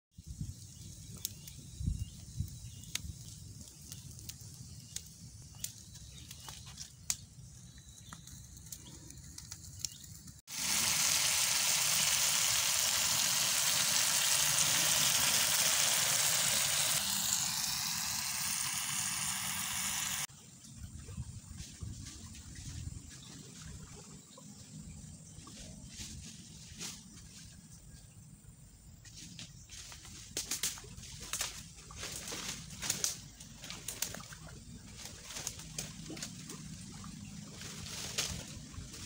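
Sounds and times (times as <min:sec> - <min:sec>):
charcoal embers crackling and popping: 0:00.5 - 0:20.3, 0:30.4 - 0:34.2
sambal sizzling in oil: 0:09.9 - 0:20.3.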